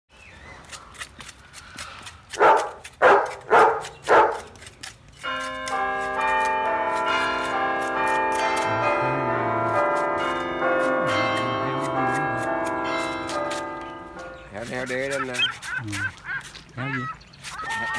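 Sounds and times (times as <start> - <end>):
ringing bell-like music: 5.2 - 14.7.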